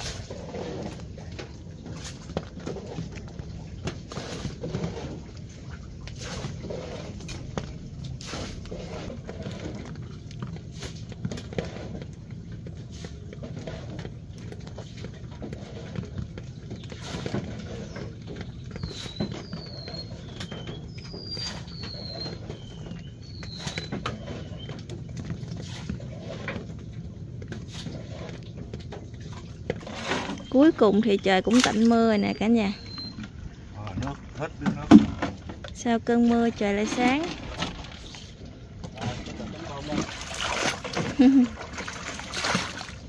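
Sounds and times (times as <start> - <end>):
bird chirping: 30.4 - 33.2.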